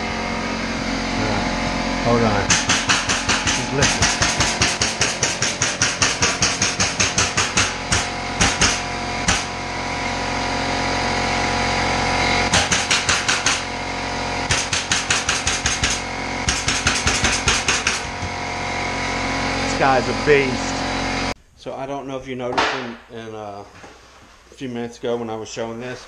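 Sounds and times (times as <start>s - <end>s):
air compressor running: 0.0s - 21.4s
pneumatic staple gun firing: 2.5s - 9.6s, 12.5s - 13.7s, 14.5s - 18.2s.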